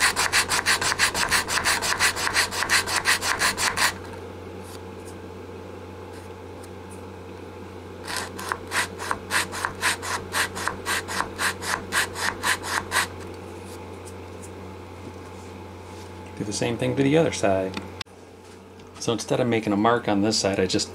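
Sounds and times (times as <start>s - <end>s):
sandpaper scraping wood: 0.0s - 4.0s, 8.1s - 13.1s.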